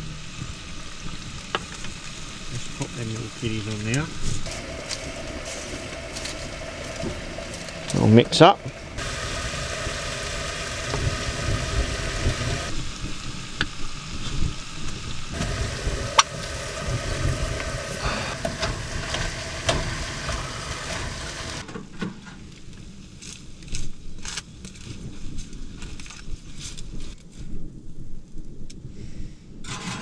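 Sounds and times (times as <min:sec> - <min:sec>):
food sizzling in a pan: 0:00.0 - 0:21.6.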